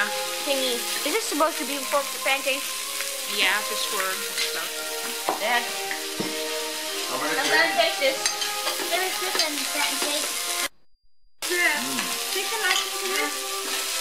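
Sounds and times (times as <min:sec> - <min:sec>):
background music: 0:00.0 - 0:10.7, 0:11.5 - 0:14.0
food sizzling on a grill: 0:00.0 - 0:10.7, 0:11.4 - 0:14.0.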